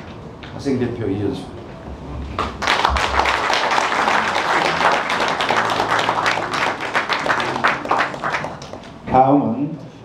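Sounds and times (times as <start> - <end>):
audience applauding: 2.4 - 9.0.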